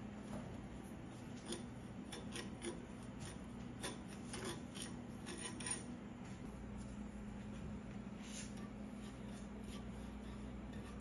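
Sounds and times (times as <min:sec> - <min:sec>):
spoon scraping sugar in a pan: 0:01.2 - 0:05.9, 0:08.4 - 0:11.0.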